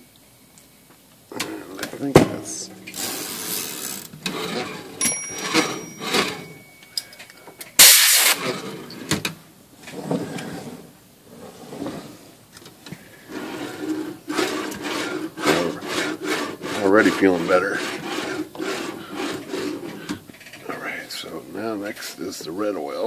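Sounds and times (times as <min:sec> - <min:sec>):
typewriter carriage rolling rattle: 0:02.9 - 0:06.6
short loud hiss: 0:07.8 - 0:08.4.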